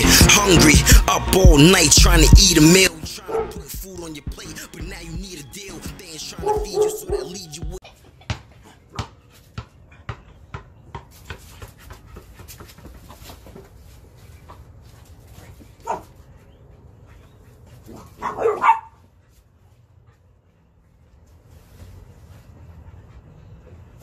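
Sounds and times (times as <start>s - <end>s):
puppy barking: 3.3s - 3.6s, 6.4s - 7.4s, 15.8s - 16.1s, 17.9s - 19.0s
basketball bouncing on concrete: 8.3s - 13.5s.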